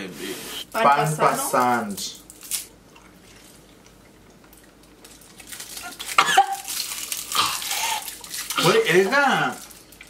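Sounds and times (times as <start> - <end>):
plastic wrappers crinkling: 1.5 - 2.7, 4.5 - 10.0.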